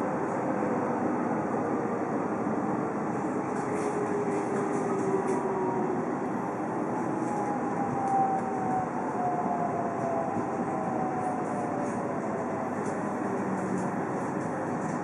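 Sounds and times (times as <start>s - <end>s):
wheels rumbling on rails: 0.0s - 15.0s.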